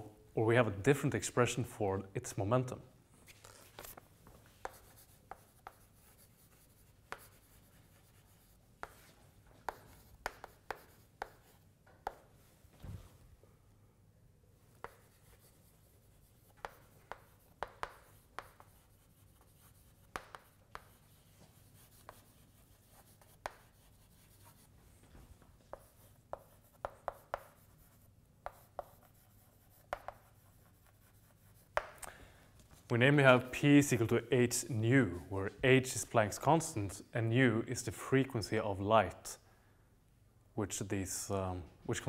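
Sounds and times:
chalk scratching on blackboard: 3.4 - 12.3, 14.7 - 24.8, 25.7 - 32.0.

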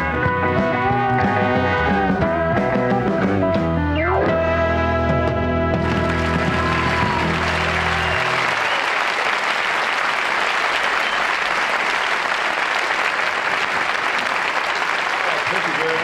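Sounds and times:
audience applauding: 5.8 - 16.0.

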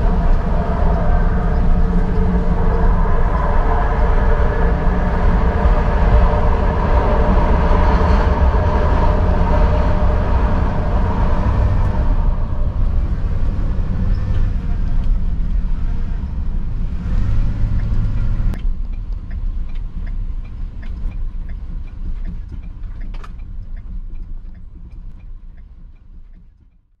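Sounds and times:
low vehicle rumble: 0.0 - 27.0
faint ticks: 17.8 - 26.8.

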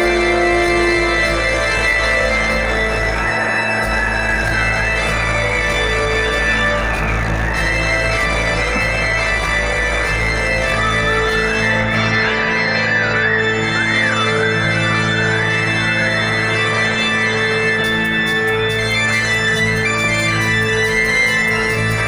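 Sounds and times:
fast ticking beat: 0.0 - 11.7
organ playing low chords: 0.0 - 22.0.

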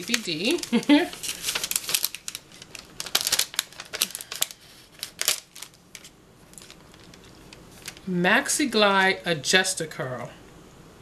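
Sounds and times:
packaging crinkling: 0.0 - 8.2.

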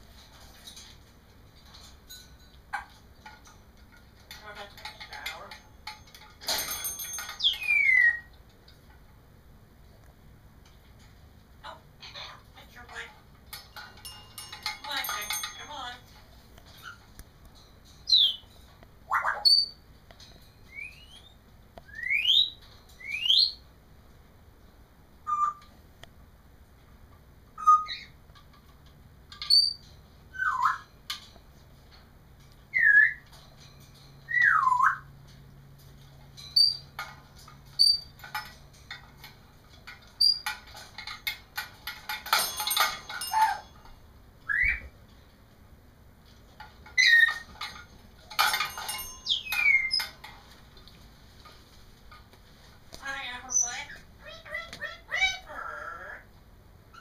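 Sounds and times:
parrot whistling and chirping: 7.4 - 8.3, 19.1 - 19.8, 20.7 - 23.6, 25.2 - 25.7, 27.6 - 28.2, 29.5 - 30.9, 32.7 - 33.2, 34.3 - 35.1, 44.5 - 44.9, 47.0 - 47.5, 49.2 - 50.2.

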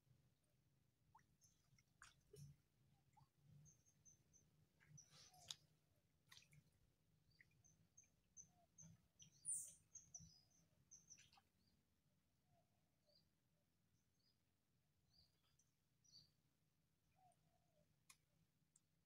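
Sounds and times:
small bird chirping: 7.3 - 11.4.

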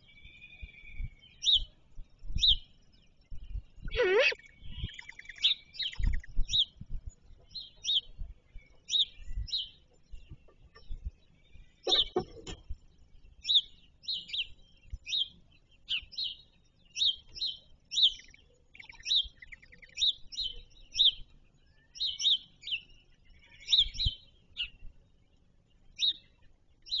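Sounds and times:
songbird chirping: 0.0 - 27.0
faint low thumps: 6.1 - 13.0.

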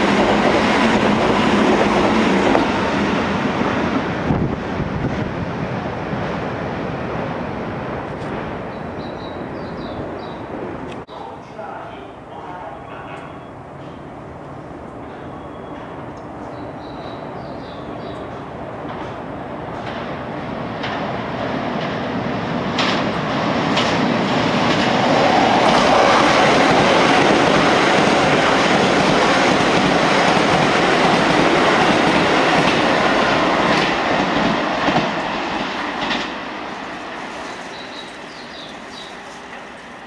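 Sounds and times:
electric train passing: 0.0 - 40.0
wheels clacking over rail joints: 18.0 - 40.0.

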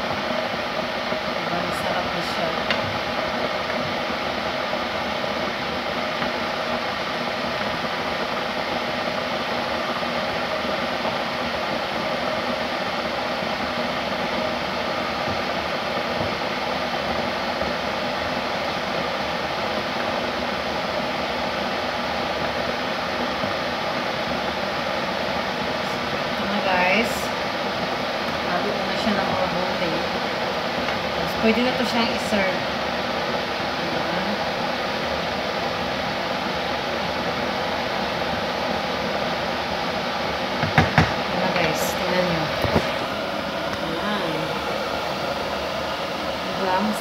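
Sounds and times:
fan whooshing: 0.0 - 47.0.

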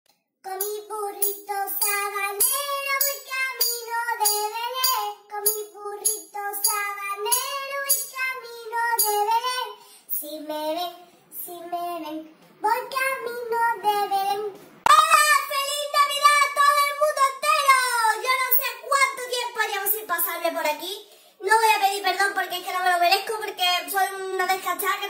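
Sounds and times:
girl singing: 0.4 - 25.0
steady percussive tapping: 0.6 - 8.2.

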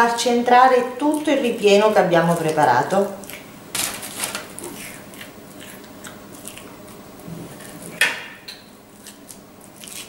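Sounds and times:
hands squishing minced meat: 9.0 - 10.0.

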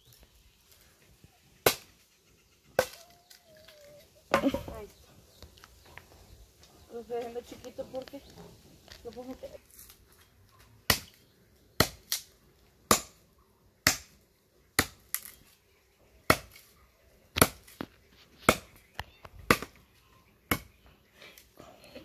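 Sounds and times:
machete chopping wood: 1.6 - 1.9, 2.8 - 3.1, 10.9 - 11.2, 11.8 - 12.3, 12.9 - 13.2, 13.8 - 14.2, 14.8 - 15.4, 16.2 - 16.7, 17.4 - 18.8, 19.5 - 19.8, 20.4 - 20.8.

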